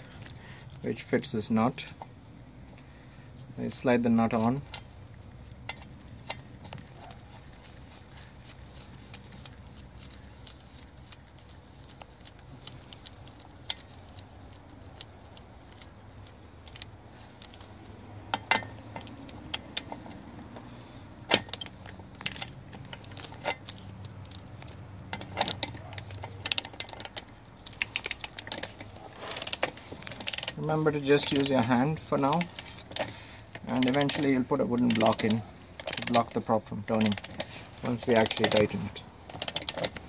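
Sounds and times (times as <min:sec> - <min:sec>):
metallic clicks of nut on shaft: 0:21.3 - 0:40.0.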